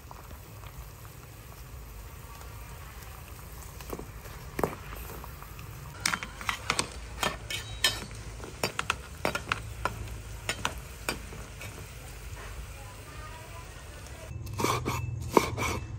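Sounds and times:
water boiling and bubbling: 0:00.0 - 0:14.3
metal skimmer clinking against pot: 0:06.0 - 0:08.9.

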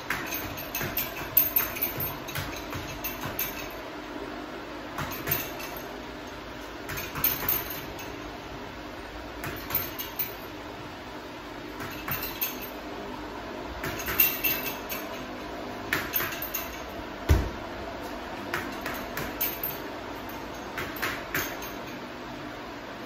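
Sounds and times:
chain clinking: 0:00.1 - 0:03.8, 0:05.0 - 0:08.2, 0:09.5 - 0:10.5, 0:11.8 - 0:12.8, 0:13.8 - 0:15.4, 0:16.0 - 0:17.0, 0:18.6 - 0:22.0
punches hitting punching bag: 0:17.3 - 0:17.6.

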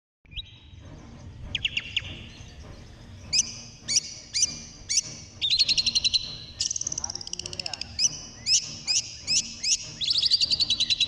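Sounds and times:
shrike singing: 0:00.3 - 0:11.0
bird fast chatter: 0:03.3 - 0:11.0.

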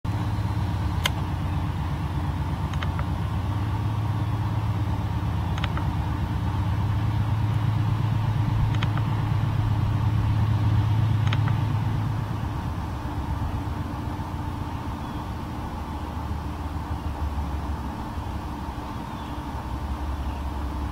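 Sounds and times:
diesel locomotive engines droning: 0:00.0 - 0:20.9
sharp double clicks: 0:01.0 - 0:01.3, 0:02.7 - 0:03.1, 0:05.5 - 0:05.9, 0:08.6 - 0:09.2, 0:11.2 - 0:11.7.

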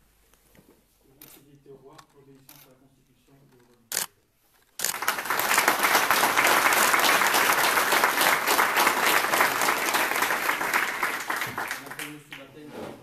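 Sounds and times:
room of people applauding: 0:04.8 - 0:12.6.

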